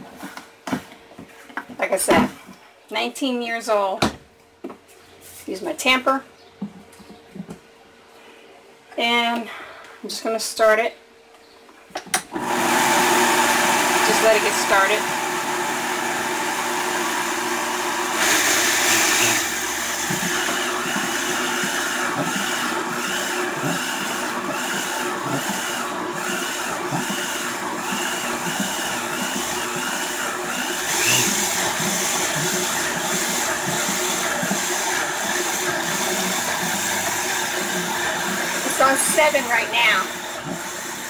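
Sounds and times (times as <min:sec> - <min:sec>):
blender grinding: 0:12.3 - 0:41.0.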